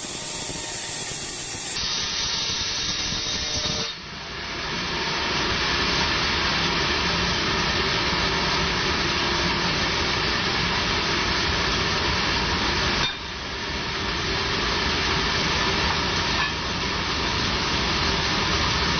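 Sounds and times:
band saw cutting a log: 0.0 - 1.8.

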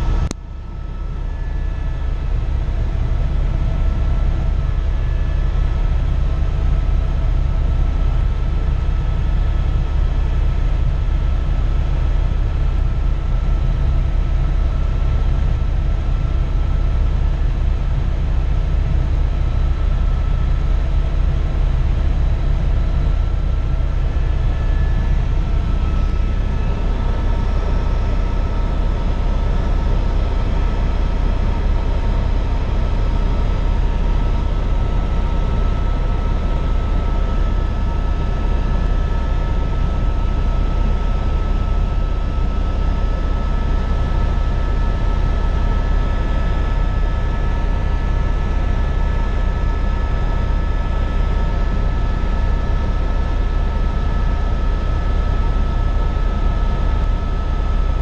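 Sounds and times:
high engine whine: 0.0 - 6.0, 18.9 - 49.0
helicopter rotor and engine rumble: 0.0 - 58.0.

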